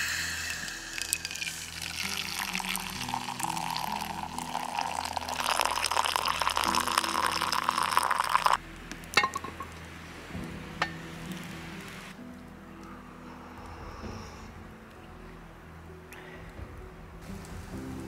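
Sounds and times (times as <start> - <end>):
water pouring into a mug: 0.5 - 8.6.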